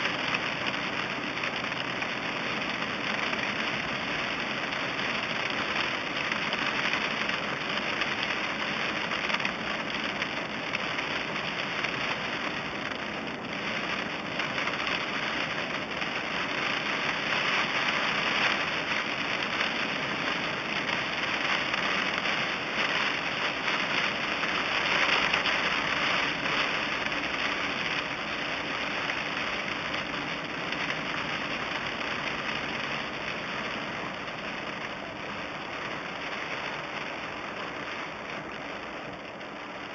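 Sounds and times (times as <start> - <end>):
heavy rain drumming on car roof: 0.0 - 39.9
tyres hissing on wet road: 0.0 - 39.9.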